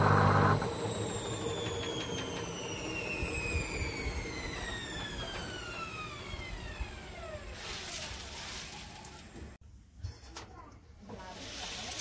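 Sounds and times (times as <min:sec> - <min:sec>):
washing machine spinning down: 0:00.0 - 0:09.6.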